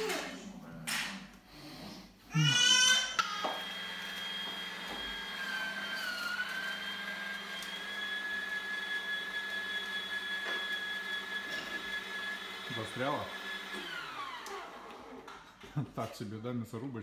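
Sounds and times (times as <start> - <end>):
meat grinder motor whine: 3.4 - 15.4.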